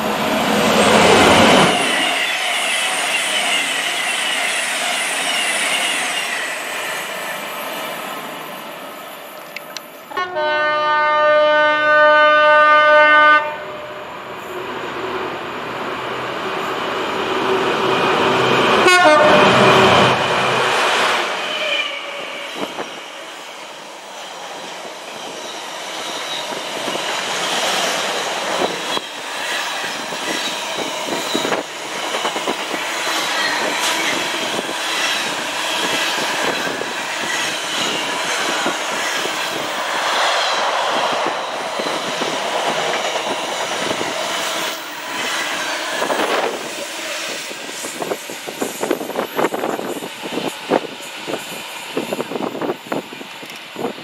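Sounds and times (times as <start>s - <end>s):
train rushing past: 0.0s - 9.4s, 10.4s - 54.0s
high wheel squeal: 1.7s - 9.3s.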